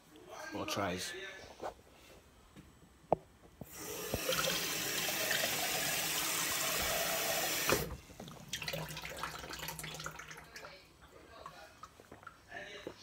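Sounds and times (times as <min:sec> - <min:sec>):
water running from a tap: 0:03.7 - 0:10.7.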